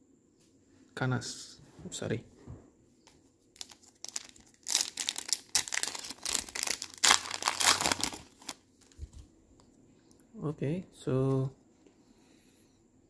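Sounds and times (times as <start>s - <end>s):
foil wrapper crackling: 3.5s - 9.2s.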